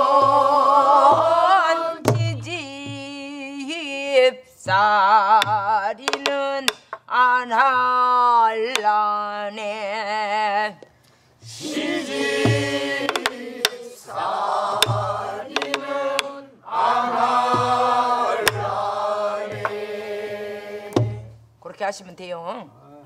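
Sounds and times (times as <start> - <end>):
group of voices singing: 0.0 - 3.1, 11.4 - 21.4
barrel drum beats: 0.0 - 3.8, 4.6 - 6.9, 11.4 - 21.6
woman singing with vibrato: 0.0 - 10.8
drumstick cracking on wooden rim: 5.3 - 7.1, 12.4 - 14.0, 14.7 - 16.4, 17.4 - 18.7.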